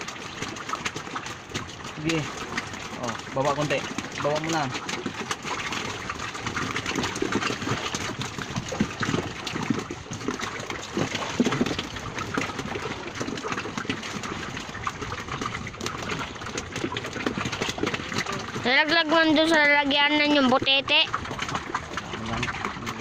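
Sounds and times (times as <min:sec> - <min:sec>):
fish tapping and slapping: 0:00.0 - 0:23.0
water splashing and dripping: 0:00.0 - 0:23.0.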